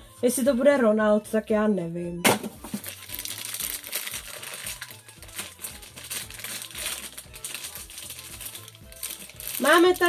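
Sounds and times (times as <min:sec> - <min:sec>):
quiet background music: 0:00.0 - 0:10.0
foil bag crinkling: 0:02.6 - 0:10.0.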